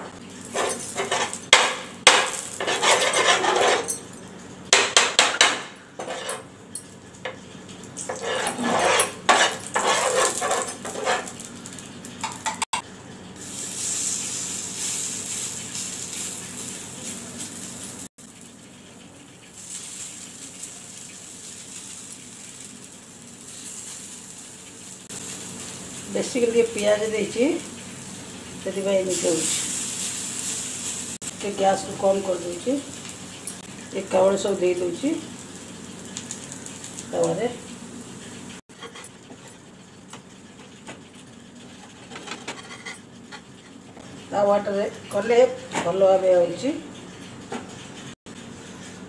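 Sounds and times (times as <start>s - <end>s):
pots and utensils clinking: 0.0s - 12.8s, 28.6s - 37.4s, 38.2s - 46.2s
metal spoon scraping iron griddle: 0.4s - 4.1s, 6.0s - 6.5s, 8.0s - 11.5s, 41.6s - 43.8s
kitchen handling: 0.5s - 6.5s.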